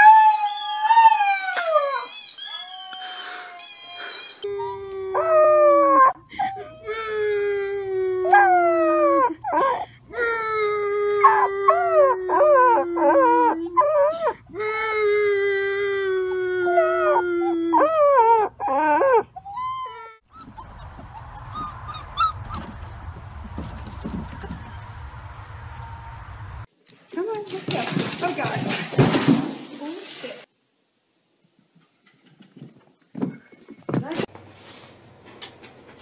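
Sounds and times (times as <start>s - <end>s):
puppy howling: 0.0s - 22.8s.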